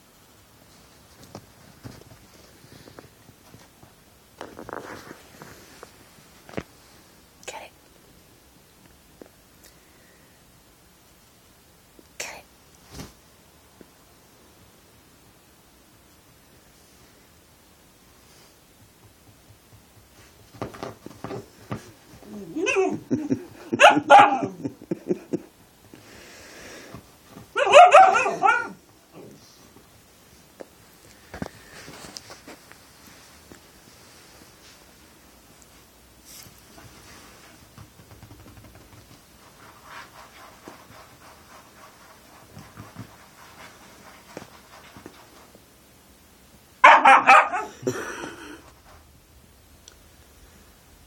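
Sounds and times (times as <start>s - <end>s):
fingers tapping on couch cushion: 18.7s - 22.3s, 36.8s - 39.7s
puppy low grumbling: 22.2s - 23.5s
puppy yipping and crying: 27.6s - 28.8s, 46.8s - 47.7s.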